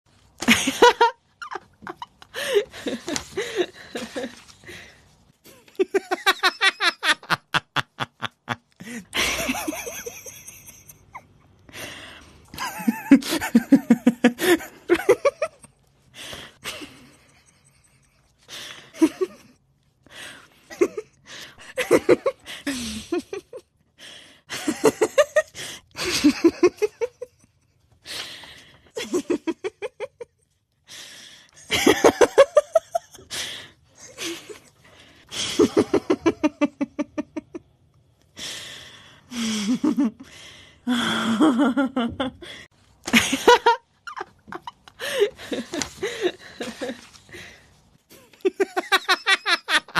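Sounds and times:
human laughter: 5.4 - 11.5, 12.5 - 15.7, 35.3 - 37.6.

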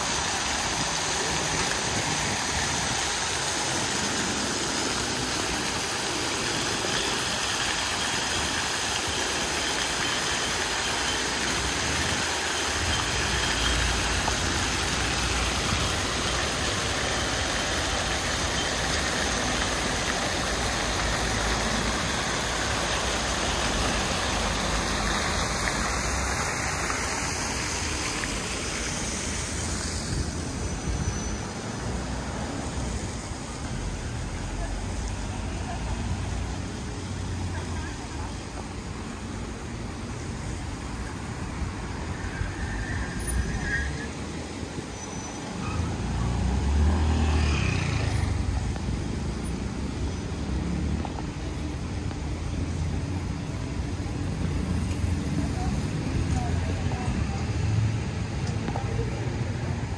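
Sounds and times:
fountain jets splashing: 0.0 - 59.9
street traffic hum: 0.0 - 59.9.

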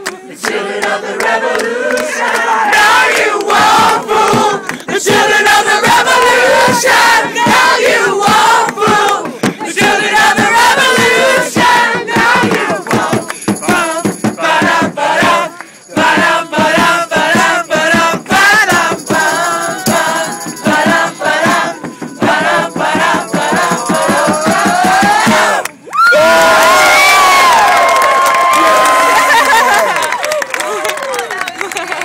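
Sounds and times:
group singing punk rock: 0.1 - 25.7
fast percussive beat: 2.7 - 25.6.

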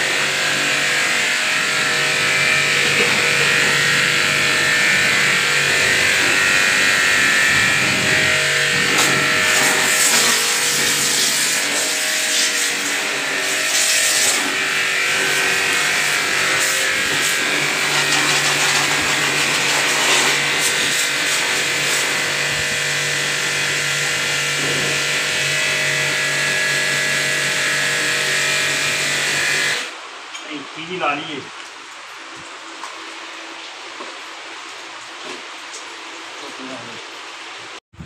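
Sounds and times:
pressure washer hum: 0.0 - 30.0
pressure washer jet hissing: 0.5 - 23.6.

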